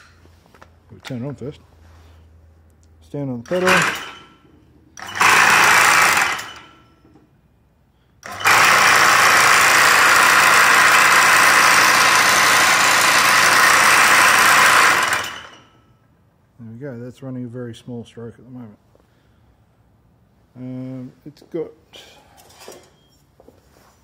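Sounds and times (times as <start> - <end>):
power hammer running: 3.4 - 4.4, 5.0 - 6.9, 8.2 - 15.8.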